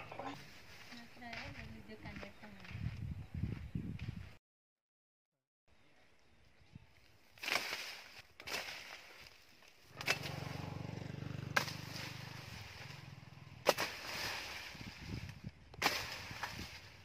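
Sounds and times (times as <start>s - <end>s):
leaves and twigs rustling: 6.8s - 10.8s, 11.4s - 17.0s
blade chopping into branches: 7.4s - 17.0s
low engine hum: 9.9s - 17.0s.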